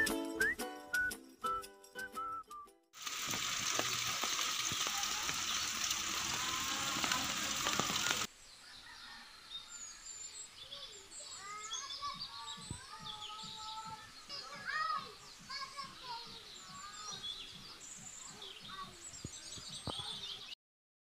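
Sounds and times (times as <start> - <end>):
loud steady hiss with crackles: 3.0 - 8.3
birds chirping and twittering: 3.2 - 20.6.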